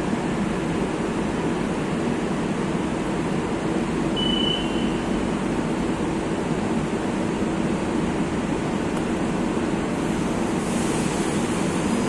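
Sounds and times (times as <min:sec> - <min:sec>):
train equipment humming: 0:00.0 - 0:12.0
short high beep: 0:04.2 - 0:05.0.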